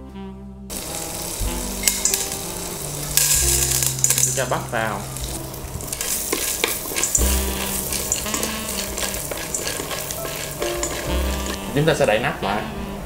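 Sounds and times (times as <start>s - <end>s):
popcorn sizzling in butter: 0.7s - 12.3s
stick scraping metal pot: 1.8s - 12.1s.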